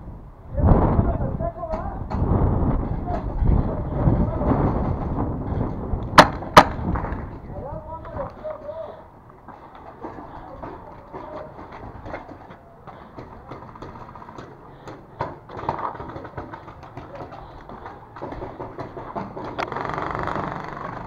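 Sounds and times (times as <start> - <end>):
wind rumbling on microphone: 0.0 - 14.5.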